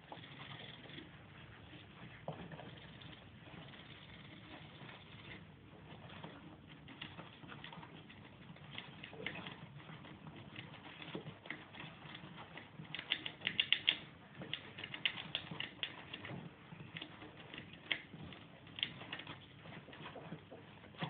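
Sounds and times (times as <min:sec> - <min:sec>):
small clicks: 0:10.6 - 0:19.4.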